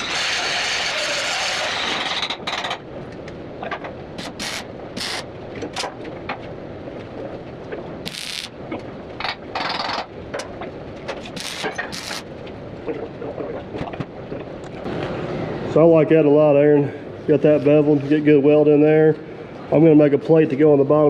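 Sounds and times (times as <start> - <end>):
arc welding crackling hiss: 4.2 - 5.3, 8.0 - 8.6, 11.3 - 12.3.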